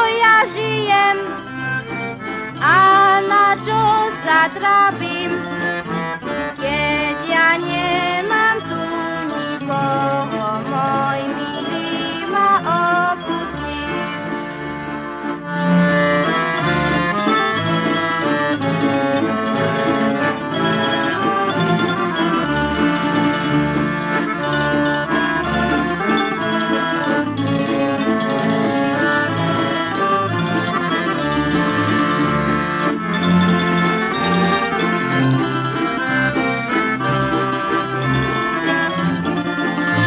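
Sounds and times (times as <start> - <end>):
folk band with accordion and strings: 0.0 - 40.0.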